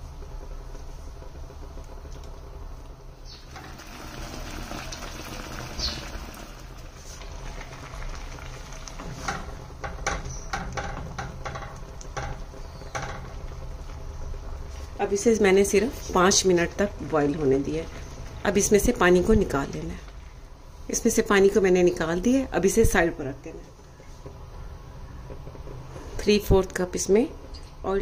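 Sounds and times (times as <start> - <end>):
water boiling in a pot: 1.5 - 19.2
sharp clicks and knocks: 9.2 - 13.7.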